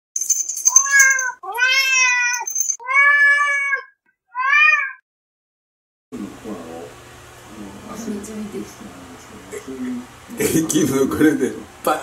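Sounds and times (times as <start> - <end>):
high thin ringing: 0.2 - 1.4, 2.0 - 2.8
cat meowing: 0.7 - 5.0.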